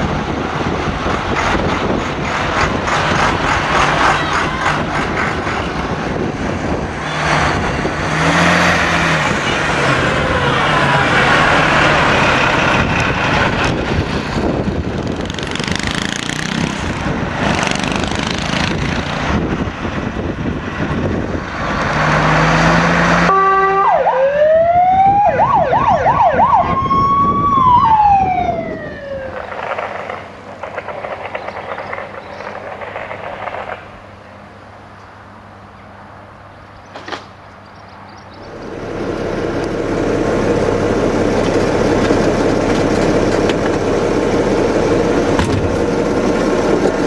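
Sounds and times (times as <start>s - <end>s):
diesel engine running: 0.0s - 23.9s, 38.3s - 47.0s
fire engine siren: 6.8s - 13.8s, 22.6s - 29.6s.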